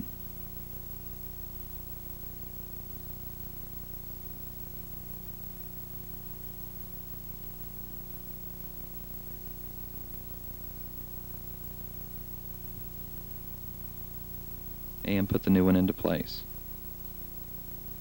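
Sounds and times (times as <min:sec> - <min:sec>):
low electrical hum: 0:00.0 - 0:18.0
tape hiss: 0:00.0 - 0:18.0.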